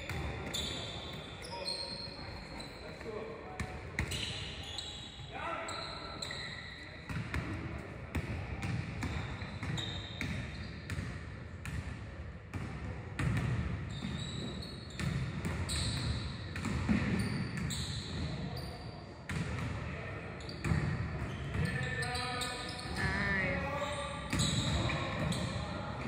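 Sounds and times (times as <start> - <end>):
basketballs bouncing on gym floor: 0.0 - 1.5, 7.1 - 18.6, 19.3 - 26.0
sneakers squeaking: 0.0 - 11.8, 12.5 - 26.0.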